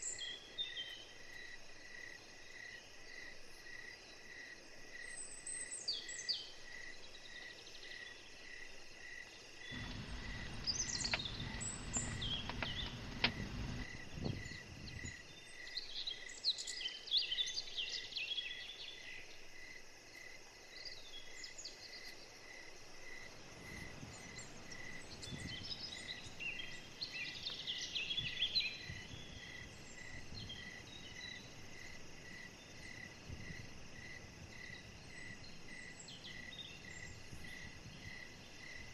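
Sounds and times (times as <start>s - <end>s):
insect chirping: 0.0s - 38.9s
birds calling: 9.6s - 18.0s
low rushing noise: 9.7s - 14.9s.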